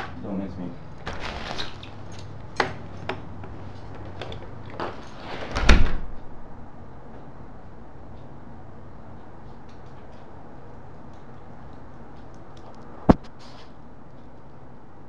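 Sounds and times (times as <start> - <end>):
door shutting with heavy thud: 5.2 - 6.4.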